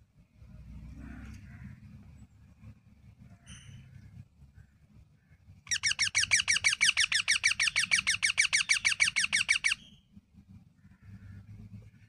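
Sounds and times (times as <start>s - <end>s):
parakeet calling: 5.7s - 10.0s.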